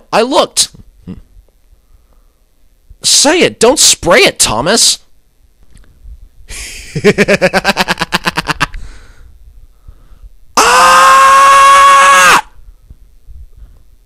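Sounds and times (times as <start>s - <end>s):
person laughing: 6.5s - 8.8s.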